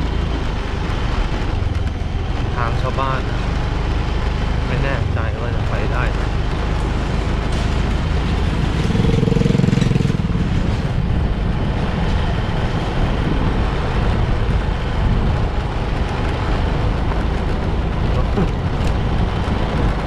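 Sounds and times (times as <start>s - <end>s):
motorcycle engine running: 0.0s - 20.0s
wind rumble on microphone: 0.0s - 20.0s.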